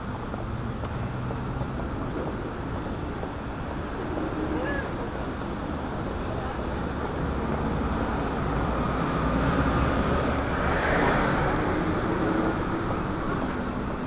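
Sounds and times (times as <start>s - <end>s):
city traffic noise: 0.0s - 14.0s.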